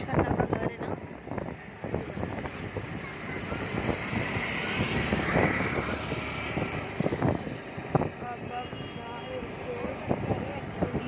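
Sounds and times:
road noise of moving car: 0.0s - 11.0s.

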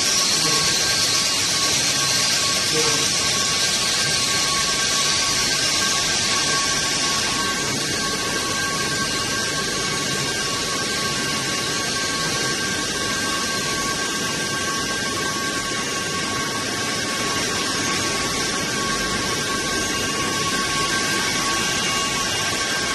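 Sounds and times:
machine hiss: 0.0s - 13.9s
steady high tones: 0.0s - 22.9s.

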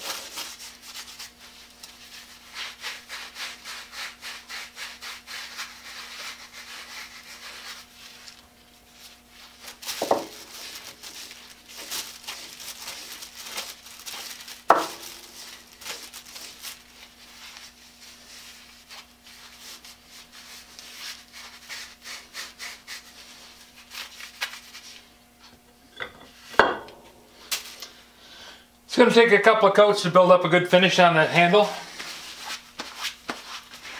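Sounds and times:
rag wiping wood: 0.0s - 13.4s, 14.7s - 24.2s.

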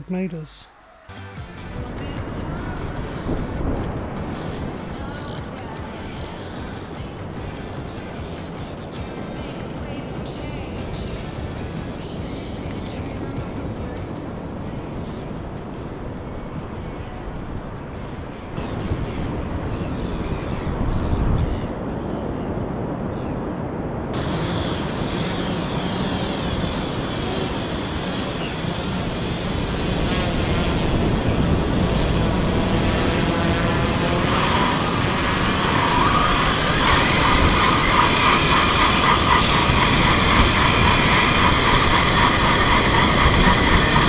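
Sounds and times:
wind on microphone: 2.0s - 8.0s, 13.4s - 44.0s
drone rotors whining: 24.2s - 44.0s.

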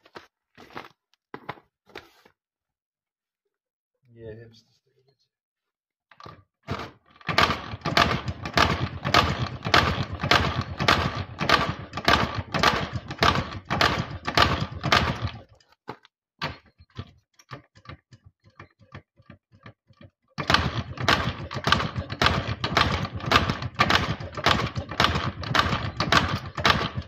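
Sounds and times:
motorcycle kick-start clattering: 6.7s - 15.6s, 16.4s - 27.0s.

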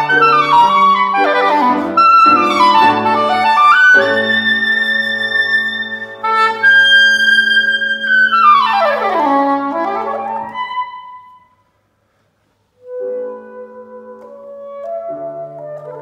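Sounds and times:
low piano notes: 0.0s - 11.4s
soprano saxophone: 0.0s - 11.5s, 12.8s - 16.0s.

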